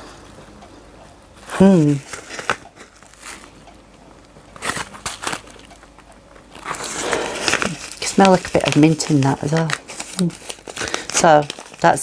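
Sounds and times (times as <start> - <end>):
paper envelope crinkling: 1.7 - 3.6, 4.6 - 12.0
person sniffing: 6.8 - 7.8.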